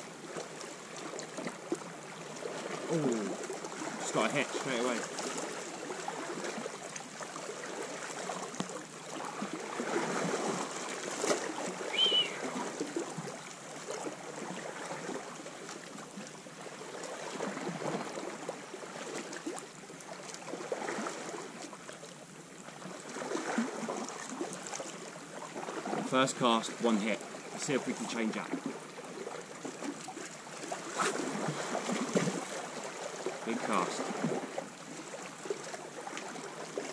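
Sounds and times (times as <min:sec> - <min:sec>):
sea water washing among rocks: 0:02.3 - 0:15.7, 0:22.9 - 0:36.9.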